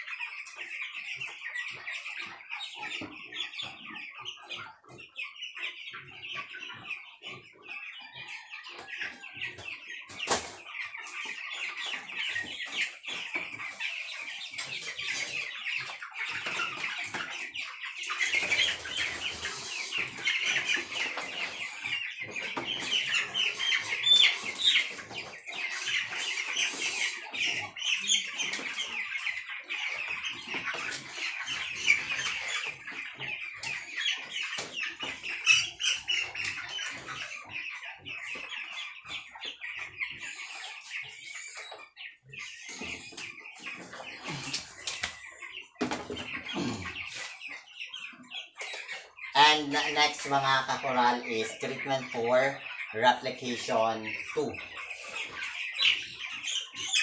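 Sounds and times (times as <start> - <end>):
chicks peeping: 0.0 - 57.0
wings flapping and scuffling: 9.1 - 47.7.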